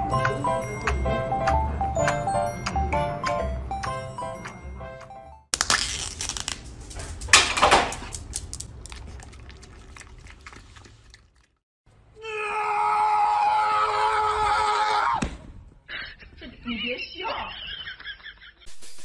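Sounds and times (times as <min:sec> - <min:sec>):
music-box-like melody: 0:00.0 - 0:05.4
plastic cup crinkling: 0:05.5 - 0:11.3.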